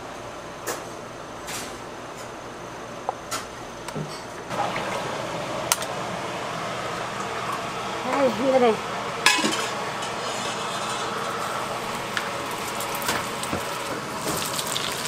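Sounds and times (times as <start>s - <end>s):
batter sizzling on griddle: 9.2s - 15.0s.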